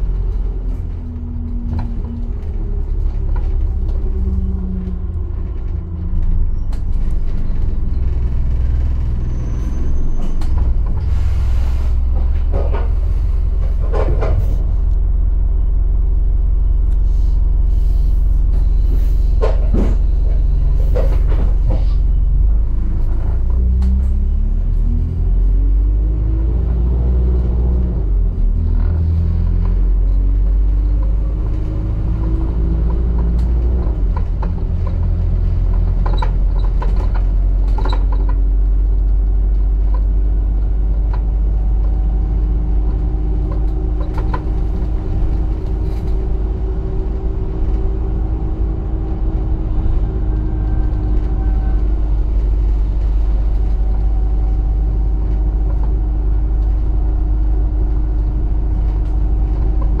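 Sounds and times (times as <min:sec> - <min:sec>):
bus engine rumble and whine: 0:00.0 - 1:00.0.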